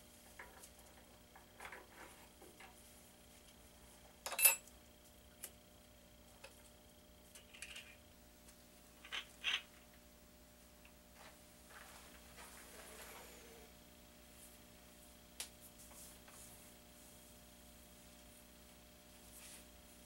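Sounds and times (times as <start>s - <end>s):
metal tools clinking: 4.3s - 4.7s.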